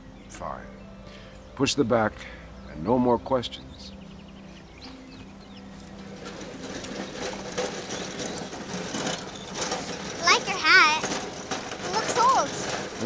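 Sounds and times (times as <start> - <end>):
cart wheels rattling on concrete: 3.9 - 13.0.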